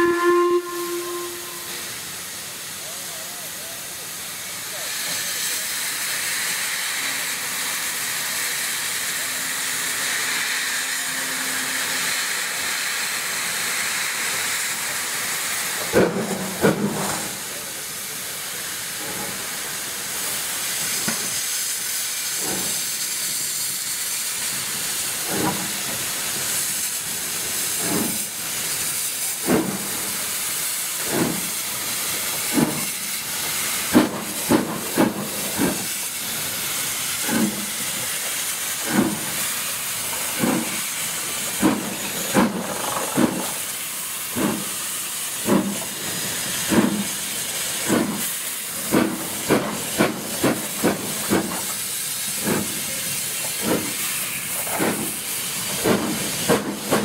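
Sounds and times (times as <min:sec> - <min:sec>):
loud steam hiss: 0:00.0 - 0:57.0
steam locomotive exhaust chuffs: 0:00.0 - 0:57.0.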